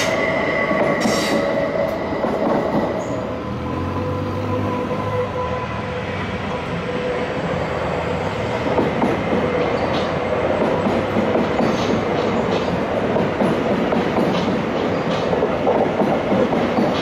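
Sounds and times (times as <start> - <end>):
train wheels rumbling on rails: 0.0 - 17.0
wheels clicking over rail joints: 8.8 - 17.0.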